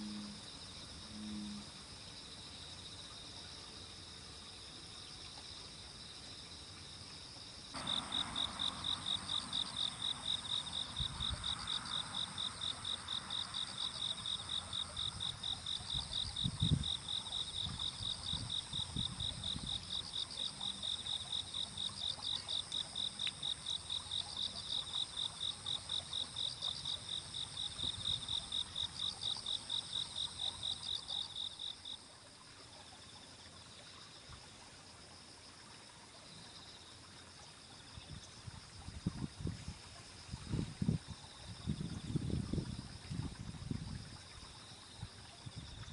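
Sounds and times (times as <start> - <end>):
crickets chirping: 0.0 - 45.9
high insect trill: 5.0 - 32.0.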